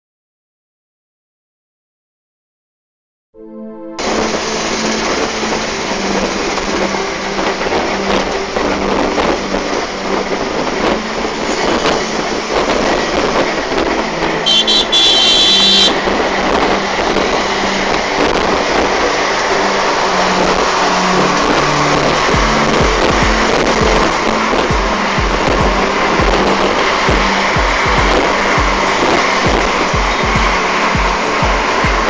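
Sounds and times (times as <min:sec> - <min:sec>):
road and wind noise: 0:03.8 - 0:32.0
low engine hum: 0:11.9 - 0:32.0
high-pitched horn toots: 0:14.2 - 0:16.3.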